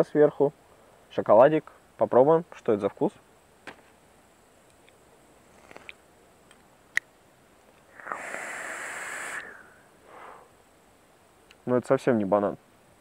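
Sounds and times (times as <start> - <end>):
vape coil hissing: 7.9 - 9.8
faint breath: 7.9 - 10.6.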